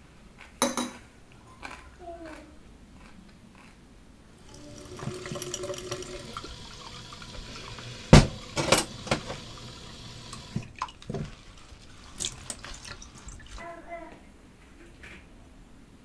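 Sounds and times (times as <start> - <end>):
crockery clinking against sink: 0.6 - 1.0, 4.8 - 11.3
tap running into sink: 4.5 - 11.5.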